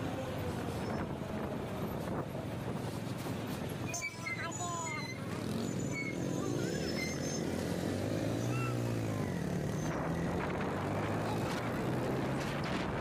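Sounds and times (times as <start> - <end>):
road noise: 0.0 - 13.0
motorcycle engine accelerating: 5.4 - 13.0
rushing wind: 8.8 - 13.0.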